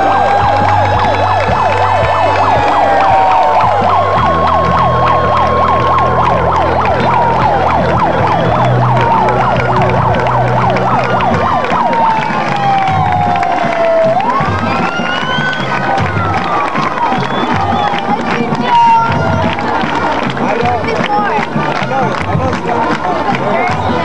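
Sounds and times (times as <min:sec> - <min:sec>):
wailing siren tone: 0:00.0 - 0:18.2
police siren fast yelp: 0:00.0 - 0:19.5.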